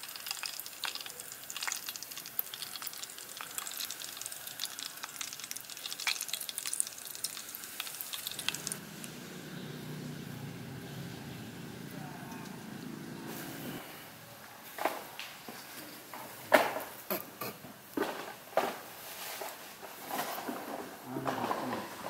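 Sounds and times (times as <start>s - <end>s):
bacon crackling and sizzling: 0.0s - 9.2s.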